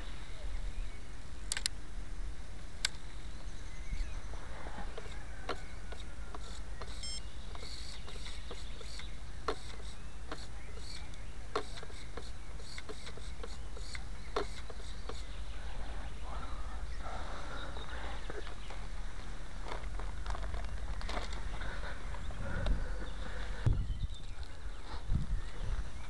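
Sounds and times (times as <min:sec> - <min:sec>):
faint high beep: 0:07.0 - 0:07.2
wind rumble on microphone: 0:19.0 - 0:26.0.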